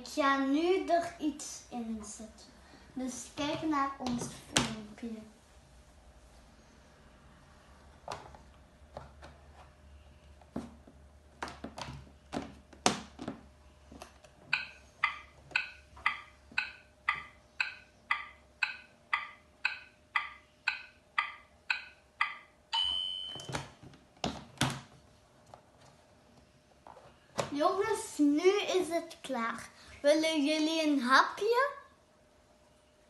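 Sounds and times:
electronic timer ticking: 0:14.5 - 0:23.4
electronic ding: 0:21.8 - 0:23.6.

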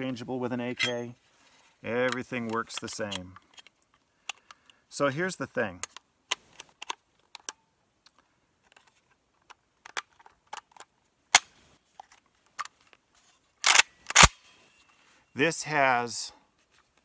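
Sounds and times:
metal clicks of pistol parts: 0:02.0 - 0:04.8, 0:05.8 - 0:12.9, 0:13.6 - 0:14.9.

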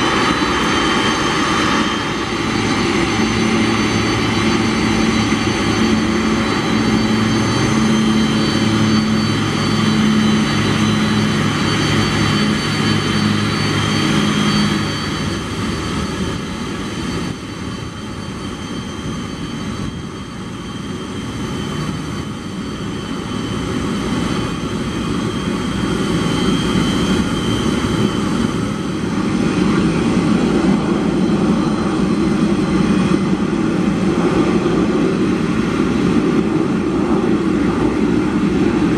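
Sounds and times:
jet engines rumbling: 0:00.0 - 0:38.9.

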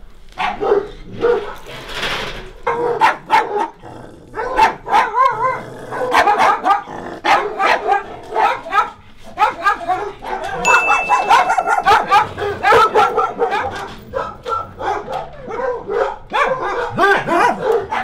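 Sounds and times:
dogs barking and yapping: 0:00.3 - 0:18.0
thin high tone: 0:10.6 - 0:12.5.

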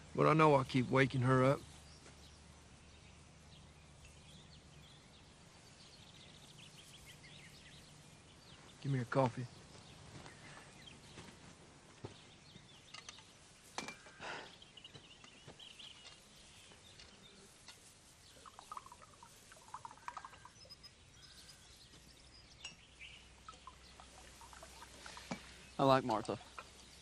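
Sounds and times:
faint bird chirps: 0:00.0 - 0:27.0.

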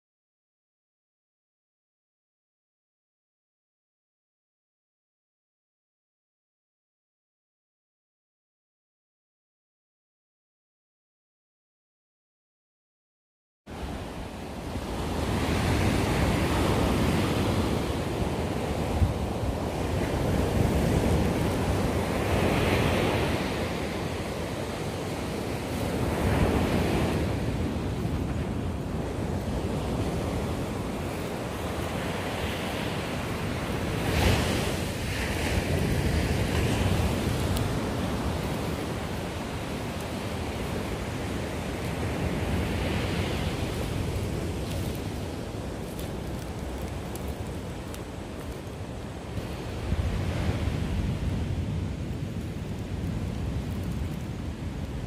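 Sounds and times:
surf washing onto sand: 0:13.7 - 0:55.0
wind buffeting microphone: 0:13.7 - 0:55.0.

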